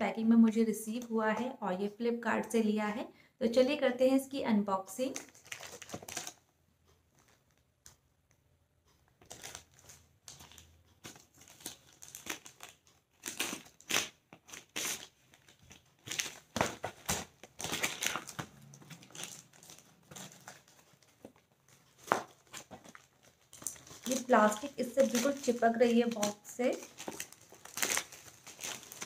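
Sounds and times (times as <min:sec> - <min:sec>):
plastic wrapping crinkling and tearing: 0:05.0 - 0:06.5, 0:09.2 - 0:29.0.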